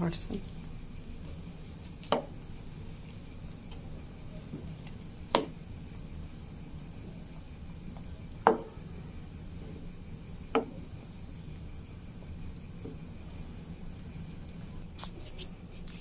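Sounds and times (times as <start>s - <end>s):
low background noise: 0.0s - 16.0s
wooden spatula knocking on pan: 8.4s - 8.7s, 10.5s - 10.8s.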